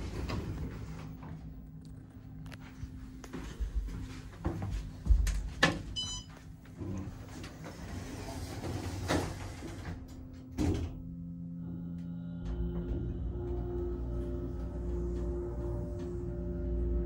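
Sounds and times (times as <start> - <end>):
elevator doors closing: 5.3 - 17.0.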